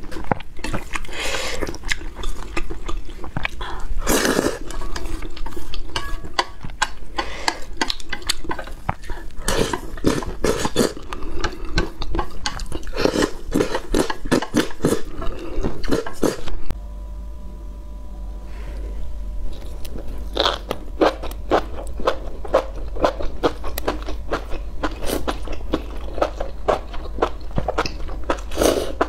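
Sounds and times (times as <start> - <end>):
slurping noodles: 4.0 - 5.8, 9.1 - 11.9, 28.4 - 29.0
chopsticks scraping metal bowl: 4.2 - 8.8.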